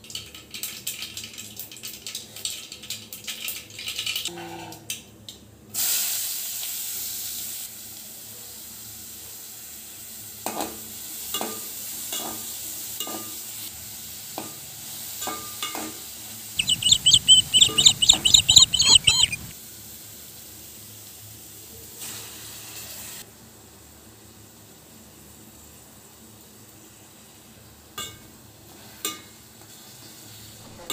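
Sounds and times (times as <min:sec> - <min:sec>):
onions sizzling in hot oil: 0:05.8 - 0:07.9, 0:22.0 - 0:23.2
rapid high chirps: 0:16.6 - 0:19.5.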